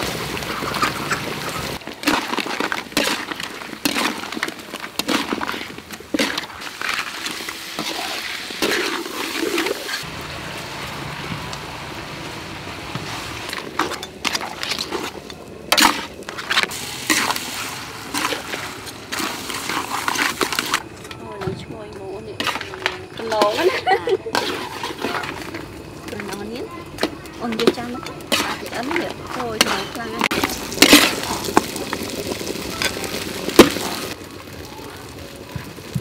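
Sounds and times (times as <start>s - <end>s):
food sizzling in a wok: 0.0s - 20.8s, 22.4s - 26.8s, 27.5s - 36.0s
metal spatula scraping a wok: 22.4s - 25.6s, 28.2s - 31.6s.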